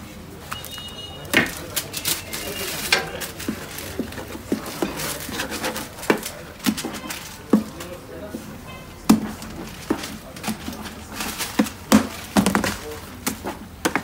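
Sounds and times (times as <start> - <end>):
metal spatula scraping metal tray: 2.0 - 7.5.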